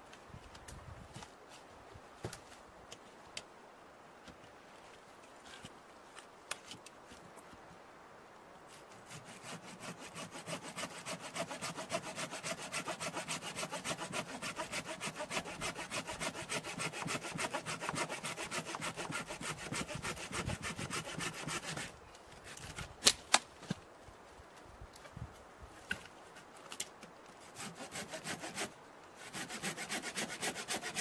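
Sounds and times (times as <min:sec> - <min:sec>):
hand saw cutting log: 0:09.0 - 0:21.9, 0:27.5 - 0:31.0.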